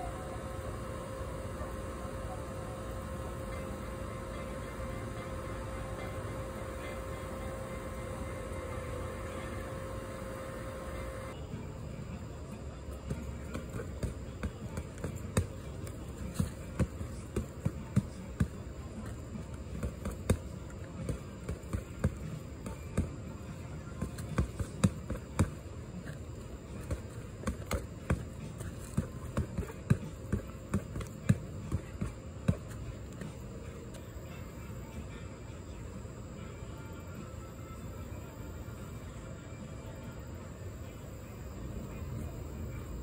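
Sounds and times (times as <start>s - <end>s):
gloves punching padding: 13.0s - 33.4s.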